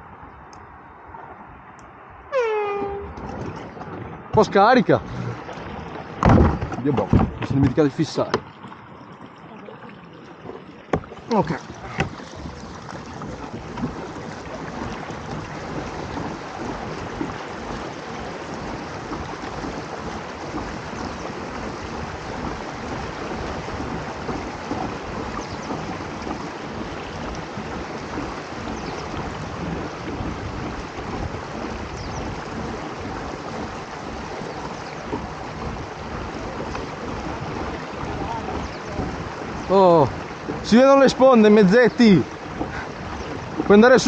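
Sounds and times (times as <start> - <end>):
water washing along a hull: 0.0 - 44.0
wind buffeting microphone: 10.4 - 44.0.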